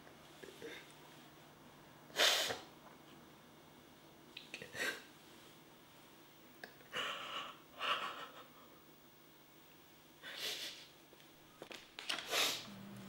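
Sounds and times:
woman sniffling and crying: 0:10.2 - 0:10.9.

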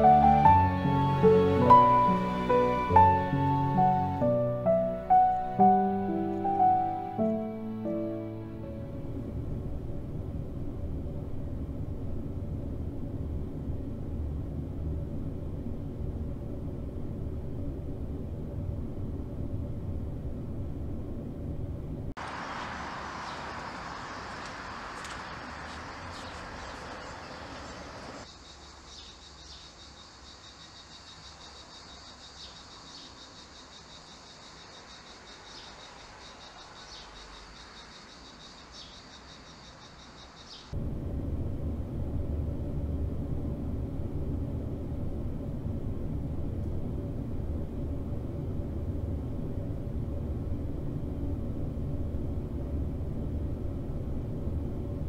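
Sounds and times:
steady low rumble: 0:00.0 - 0:28.3, 0:40.7 - 0:55.0
insects chirring: 0:22.2 - 0:41.6.

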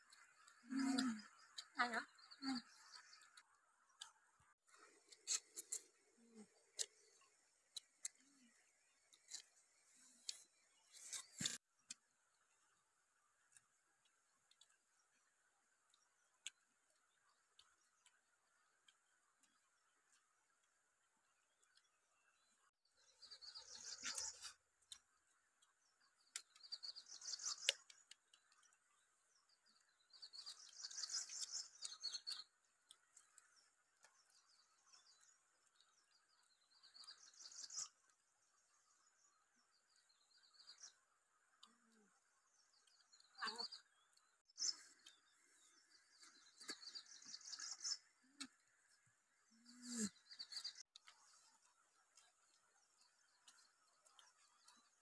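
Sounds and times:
bird singing high phrases: 0:41.8 - 0:48.5.

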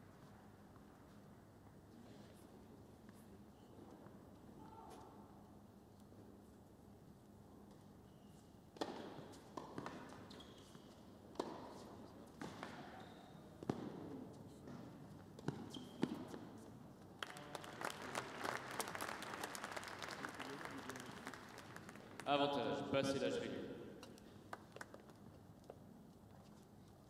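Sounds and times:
ball bouncing on hard court: 0:08.8 - 0:10.2, 0:12.4 - 0:16.5
crowd applause: 0:17.2 - 0:22.3.

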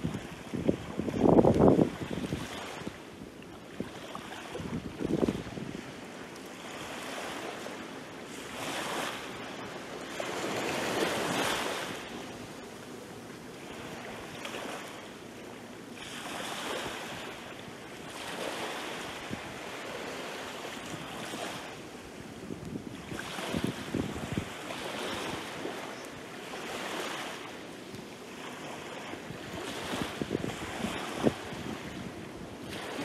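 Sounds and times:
small waves washing up shore: 0:00.0 - 0:33.0.

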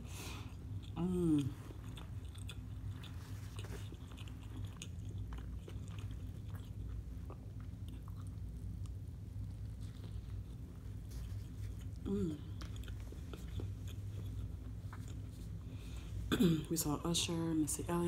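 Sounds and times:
crunchy food chewing: 0:00.4 - 0:16.3
person humming: 0:01.0 - 0:01.6, 0:12.0 - 0:12.6.

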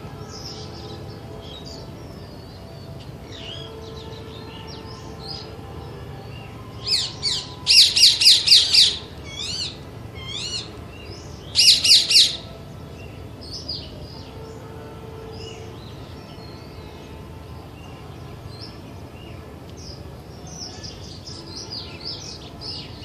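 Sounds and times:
birds chirping: 0:00.0 - 0:23.0
parakeet screeching: 0:07.0 - 0:10.7, 0:11.6 - 0:12.4.

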